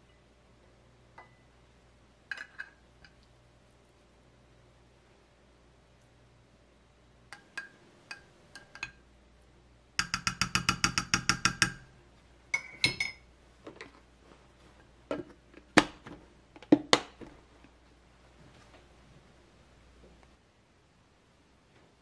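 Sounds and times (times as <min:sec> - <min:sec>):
spoon clinking against glass: 0:12.5 - 0:13.2.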